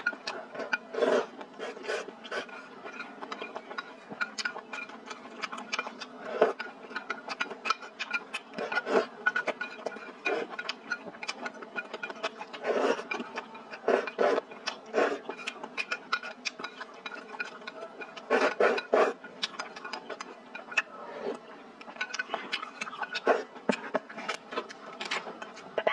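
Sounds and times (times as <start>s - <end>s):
slurping broth: 18.0s - 19.3s.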